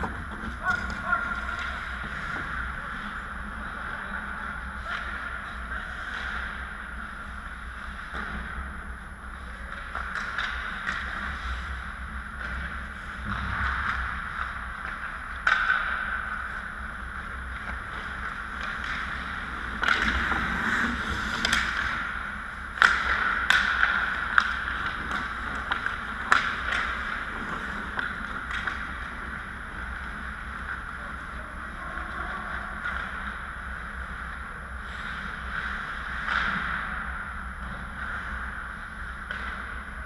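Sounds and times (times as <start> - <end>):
hockey sticks and puck clacking: 0.0 - 40.0
skate blades scraping ice: 17.5 - 31.3.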